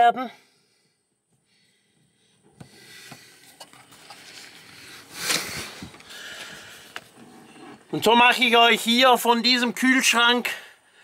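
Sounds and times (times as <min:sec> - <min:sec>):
camera handling rustling: 0:03.1 - 0:07.8.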